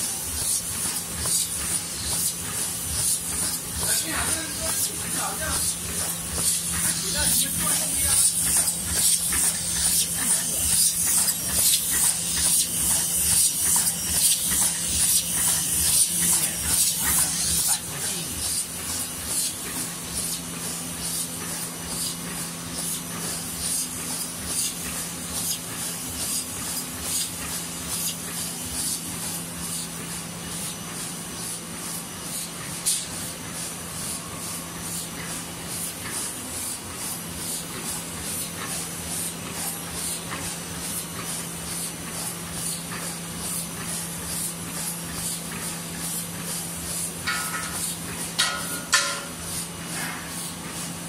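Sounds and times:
fast irregular machine ticking: 0.0 - 21.7
napkin machine humming: 0.0 - 51.0.

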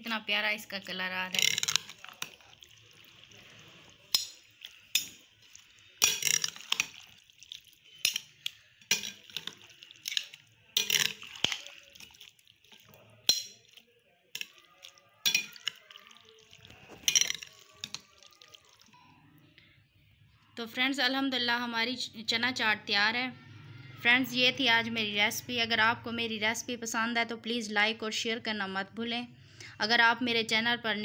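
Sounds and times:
wet squelching of food: 1.4 - 19.0
spoon clinking on glass: 6.0 - 7.1, 8.0 - 12.1, 13.3 - 13.8, 15.2 - 15.9, 16.9 - 18.1.

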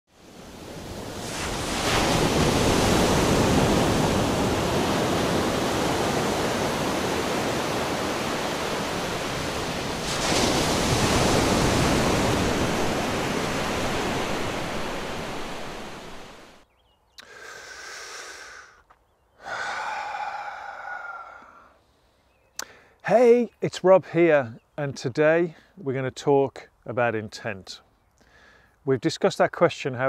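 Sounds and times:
ocean waves breaking: 0.1 - 16.6.

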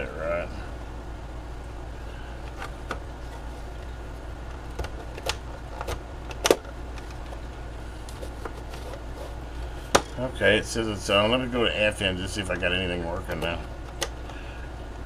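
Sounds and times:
faint low hum: 0.0 - 15.0
plastic radio clicks and knocks: 4.6 - 7.5, 13.3 - 14.3.

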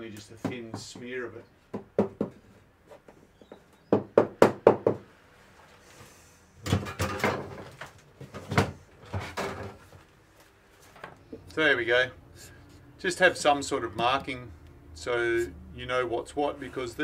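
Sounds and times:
sharp wooden knocks: 1.7 - 2.4, 3.5 - 5.0
wood clattering and scraping: 6.7 - 10.1.

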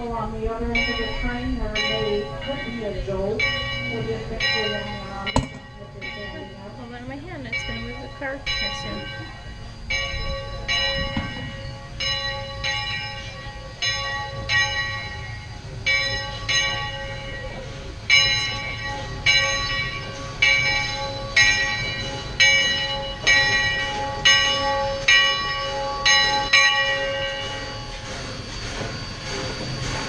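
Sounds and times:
low train rumble: 0.0 - 30.0
steam locomotive bell ringing: 0.0 - 30.0.

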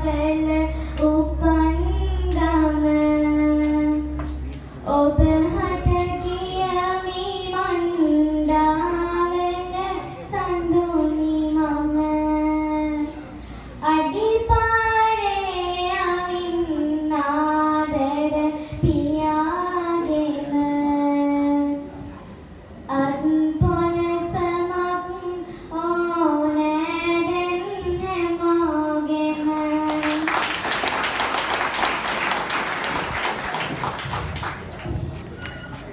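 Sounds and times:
girl singing into a microphone: 0.0 - 22.1, 22.8 - 30.6
audience applauding: 29.9 - 35.9.

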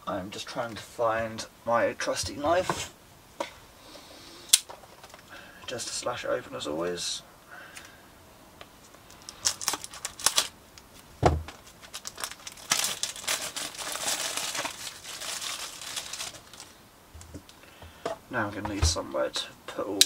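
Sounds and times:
crinkling plastic film: 8.9 - 17.6
shrink-wrap scratching: 9.1 - 10.6, 11.5 - 16.8.

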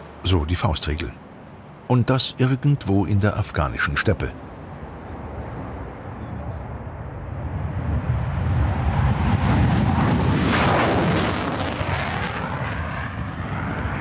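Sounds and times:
jet engines roaring: 6.7 - 14.0.

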